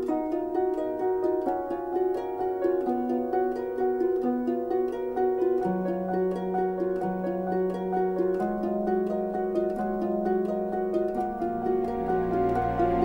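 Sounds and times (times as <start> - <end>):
plucked-string notes: 0.0 - 13.0
long held low notes: 11.2 - 13.0.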